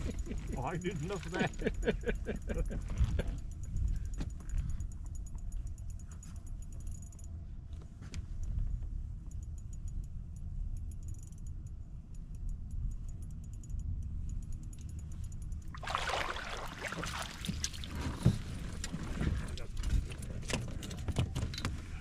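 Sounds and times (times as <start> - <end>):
faint rapid ticking: 9.2 - 15.7
rustling clattering with clicks: 17.5 - 22.0.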